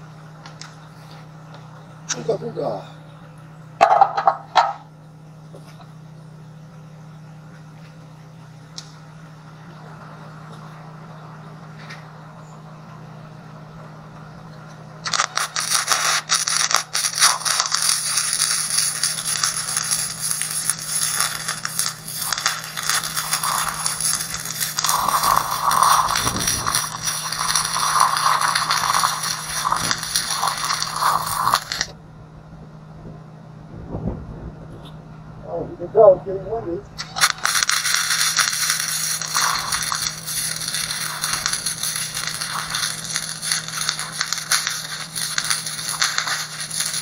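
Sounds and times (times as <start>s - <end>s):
steady low hum: 0.0s - 47.0s
welder arc crackling: 8.6s - 10.8s, 15.0s - 32.0s, 36.9s - 47.0s.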